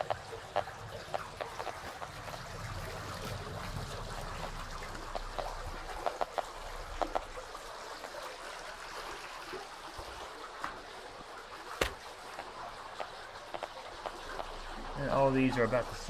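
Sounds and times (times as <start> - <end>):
geiger counter clicking: 0.0 - 2.6, 4.1 - 7.4, 12.3 - 14.8
stream rushing: 0.0 - 16.0.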